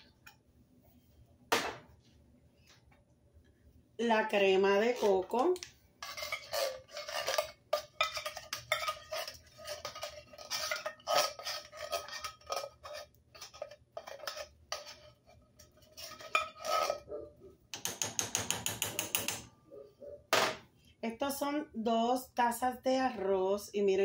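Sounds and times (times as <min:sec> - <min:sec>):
spoon scraping inside tin can: 0:04.8 - 0:17.1.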